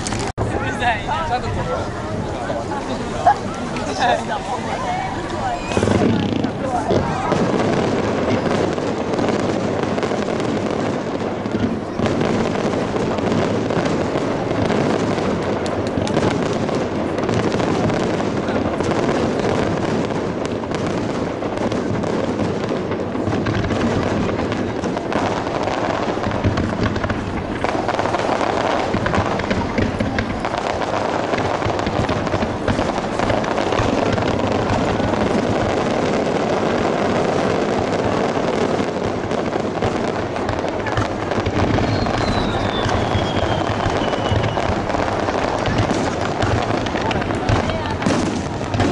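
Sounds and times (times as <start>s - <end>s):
fireworks bursting and crackling: 0.0s - 48.9s
falling firework whistle: 5.3s - 7.8s, 40.9s - 46.1s.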